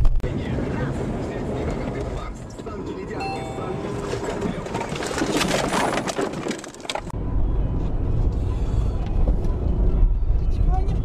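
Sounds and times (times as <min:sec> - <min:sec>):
crackling scraping noise: 0:03.8 - 0:07.1.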